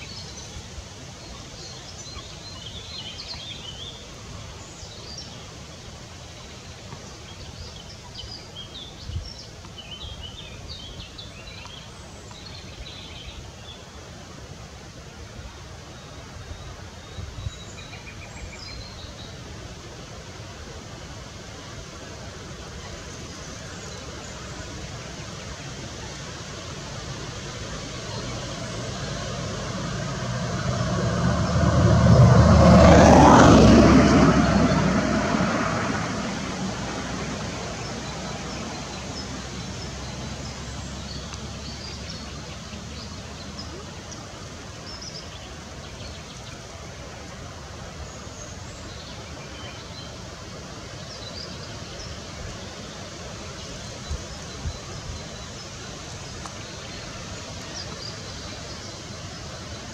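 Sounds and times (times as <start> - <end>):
steady outdoor hiss: 0.0 - 59.9
vehicle passing by: 26.8 - 44.8.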